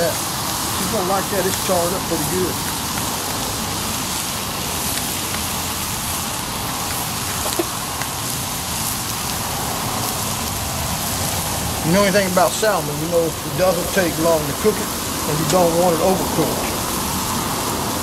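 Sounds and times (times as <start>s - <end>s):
fish sizzling in oil: 0.0s - 18.0s
fat spattering pops: 6.7s - 8.2s.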